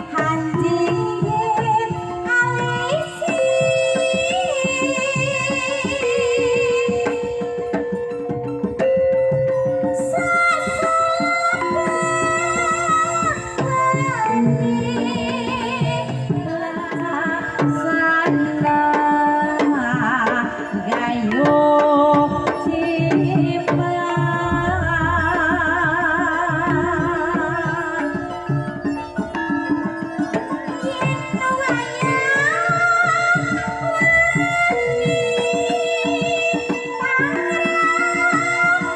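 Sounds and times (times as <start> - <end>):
hand drum strokes: 0.0 - 38.9
person singing with vibrato: 18.2 - 28.7
gamelan music: 22.4 - 34.0
gong tones: 24.4 - 27.8.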